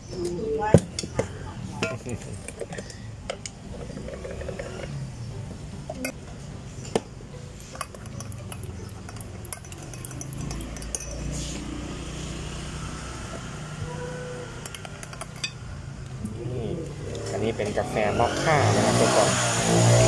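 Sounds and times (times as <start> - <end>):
metal spoon clinking against glass: 7.7 - 11.7, 14.6 - 15.6.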